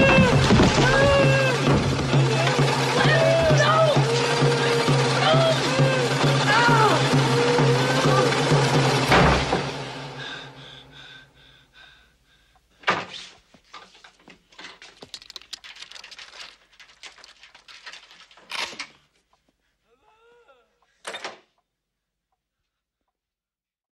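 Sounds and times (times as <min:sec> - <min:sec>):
film score with sharp hit: 0:09.0 - 0:10.5.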